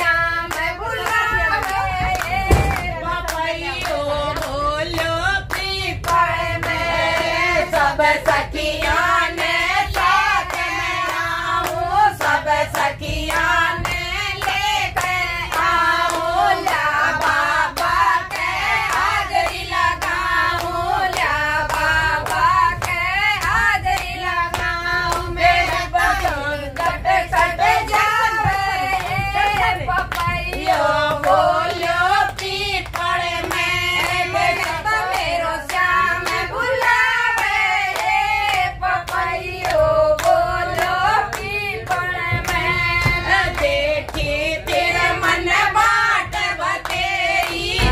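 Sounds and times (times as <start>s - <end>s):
group singing: 0.0s - 47.9s
hand clapping: 10.0s - 47.9s.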